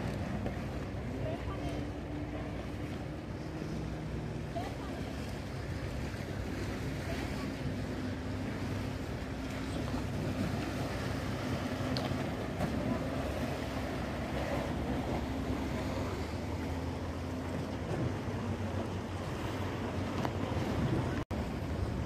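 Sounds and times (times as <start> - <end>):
wind blowing across microphone: 20.3 - 22.0.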